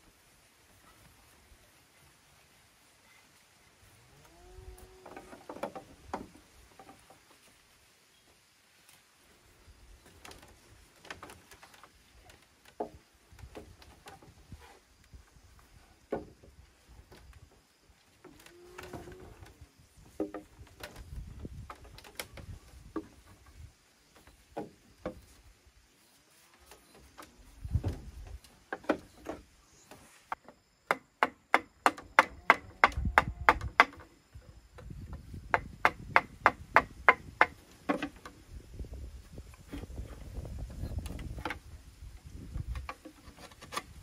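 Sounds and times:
tool striking bamboo: 0:30.4 - 0:34.1, 0:35.5 - 0:38.3.

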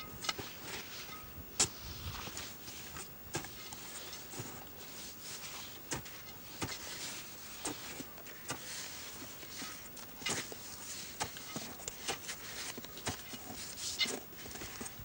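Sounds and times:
boots crunching in snow: 0:00.4 - 0:15.0.

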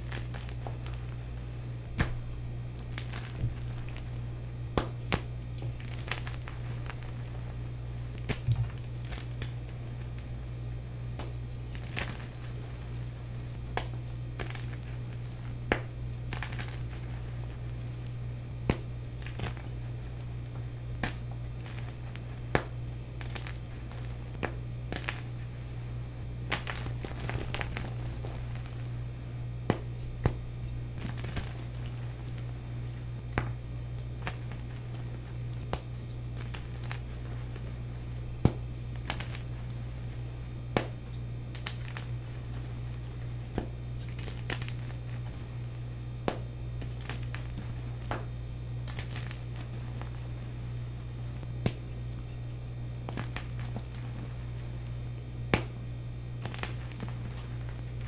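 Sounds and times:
chalk blocks cracking and crunching: 0:00.0 - 0:04.1, 0:04.7 - 0:10.6, 0:11.2 - 0:17.5, 0:18.5 - 0:25.8, 0:26.4 - 0:28.9, 0:29.6 - 0:39.7, 0:40.6 - 0:45.6, 0:46.2 - 0:54.6, 0:56.4 - 0:58.0
powdery crumbling rustle: 0:00.0 - 0:58.0
steady low hum: 0:00.0 - 0:58.0.

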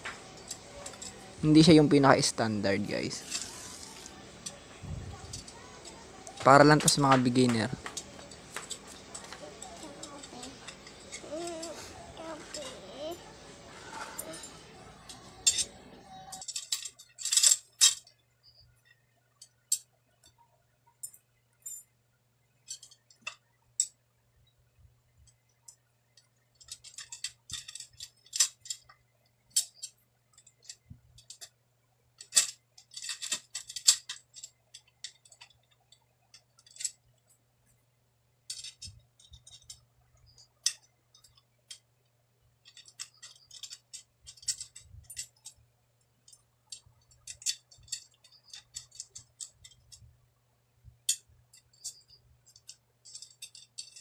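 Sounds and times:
steel spokes clinking: 0:00.0 - 0:18.1, 0:42.6 - 0:45.6, 0:46.2 - 0:50.1, 0:51.1 - 0:54.0.

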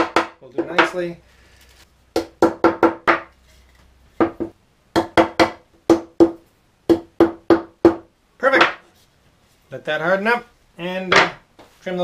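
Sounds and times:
wooden mallet knocking wood: 0:00.0 - 0:01.0, 0:02.2 - 0:03.3, 0:04.2 - 0:08.8, 0:11.1 - 0:11.4.

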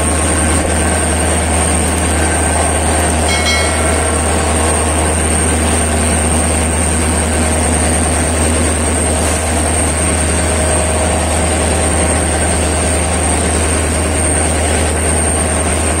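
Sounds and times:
locomotive engine deep rumble: 0:00.0 - 0:16.0.

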